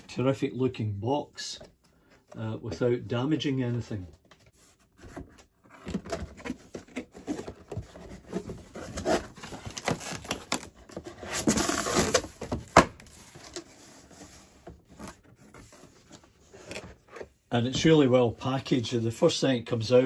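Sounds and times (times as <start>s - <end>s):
cardboard scraping and rustling: 1.6s - 18.2s.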